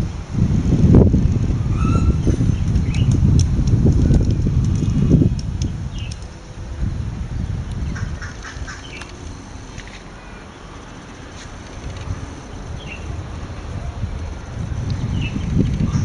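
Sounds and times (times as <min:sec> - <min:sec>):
wind on microphone: 0:00.0 - 0:10.2, 0:10.9 - 0:16.0
birds chirping: 0:05.2 - 0:06.4, 0:07.4 - 0:16.0.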